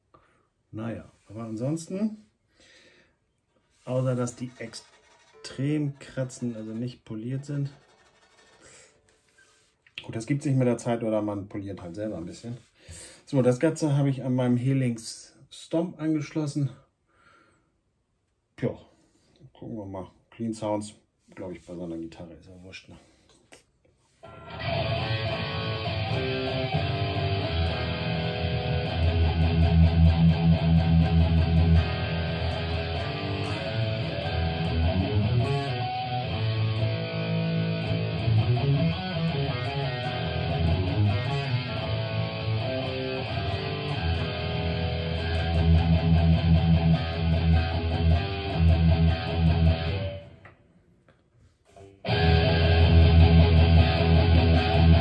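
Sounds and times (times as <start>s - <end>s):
distorted electric guitar riffs: 24.2s - 50.4s, 51.8s - 55.0s.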